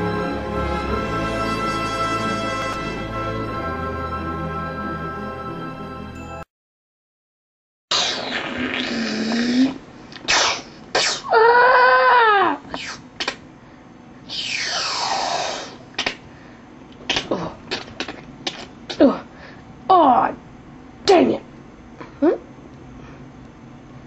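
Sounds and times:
mouth-made puffs: 7.9s - 11.3s, 12.7s - 13.4s, 14.3s - 16.2s.

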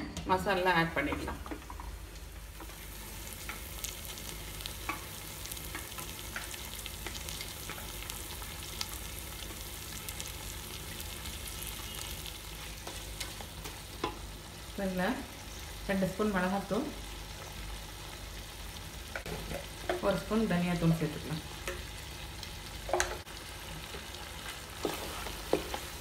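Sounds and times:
food sizzling in oil: 0.4s - 26.0s.

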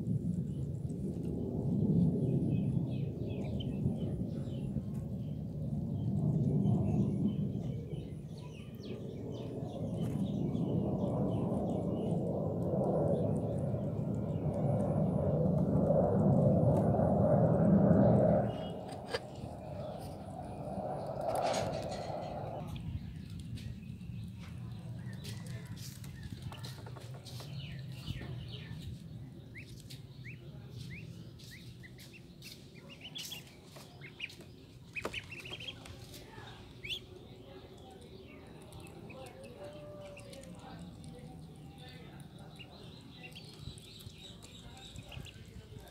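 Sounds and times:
low background rumble: 0.0s - 26.5s
low hum: 9.2s - 25.0s
ducklings peeping: 26.6s - 45.9s.

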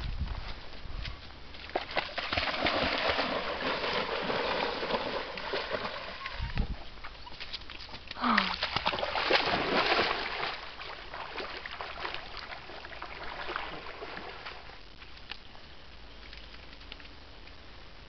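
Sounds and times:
dog splashing through water: 1.6s - 14.8s.

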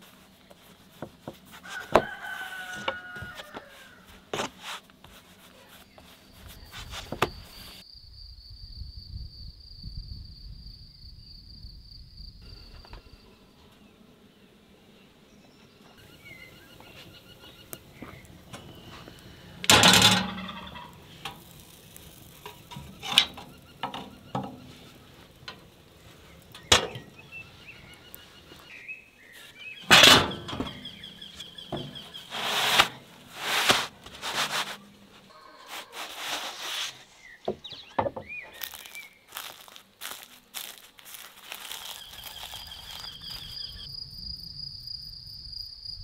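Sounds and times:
wooden peel sliding dough: 0.0s - 7.8s, 30.7s - 37.5s
metal oven doors clanking: 18.4s - 21.4s, 26.4s - 27.3s, 29.8s - 33.2s.

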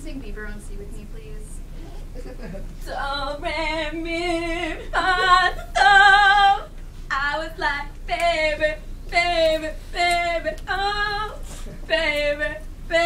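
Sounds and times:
girl singing unaccompanied: 2.9s - 13.0s.

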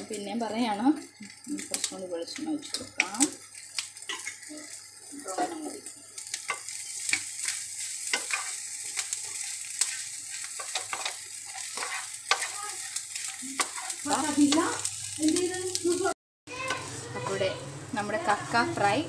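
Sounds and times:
clam meat sizzling in a pan: 0.0s - 19.0s
spatula scraping a pan: 1.6s - 15.6s, 16.5s - 17.6s.

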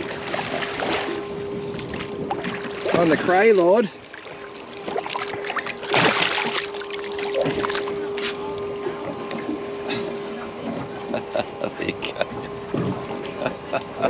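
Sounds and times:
steady hum: 0.0s - 14.0s
fish splashing at water surface: 4.1s - 8.0s.

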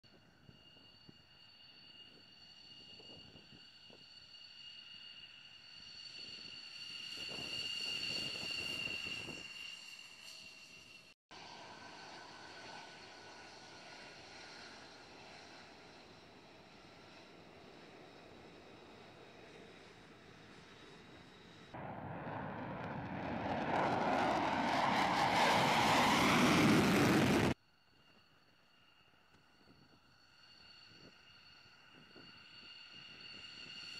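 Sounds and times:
jet engine whine: 0.1s - 33.9s
low rumble: 21.8s - 27.6s.

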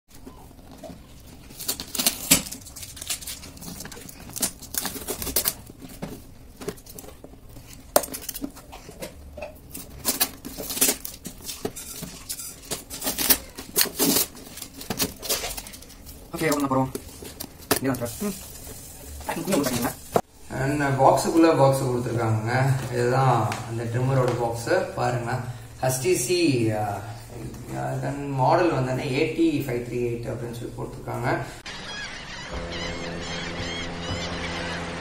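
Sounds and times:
packing tape ripping off cardboard: 0.9s - 8.7s, 9.7s - 16.1s.

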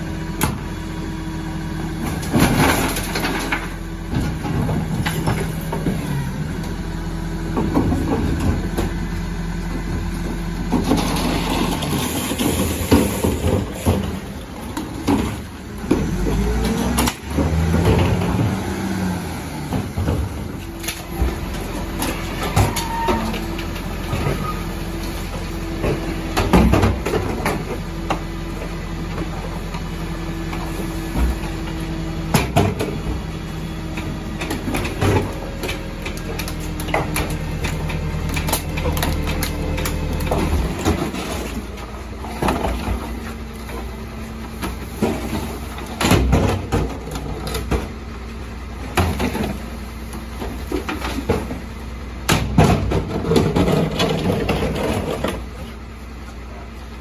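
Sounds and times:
garbage truck engine running: 0.0s - 57.0s
hydraulic packer humming: 0.0s - 57.0s
bins tipped with knocks and thuds: 25.8s - 28.2s, 44.6s - 48.0s, 52.4s - 55.5s.

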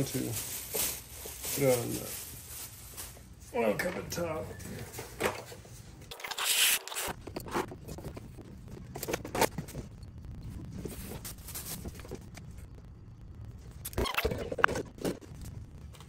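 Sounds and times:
plastic bag crinkling: 6.1s - 12.8s.

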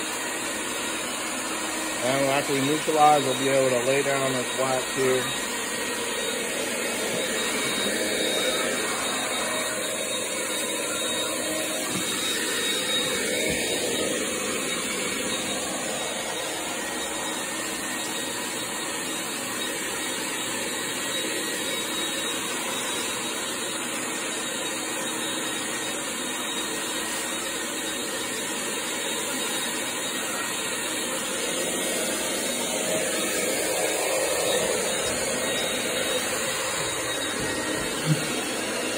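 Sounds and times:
vacuum motor running: 0.0s - 38.9s.

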